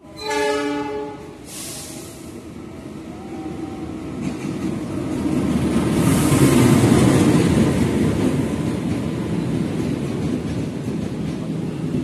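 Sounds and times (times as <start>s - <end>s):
train wheels rumbling on rails: 0.2s - 12.0s
passing train hiss: 0.3s - 9.5s.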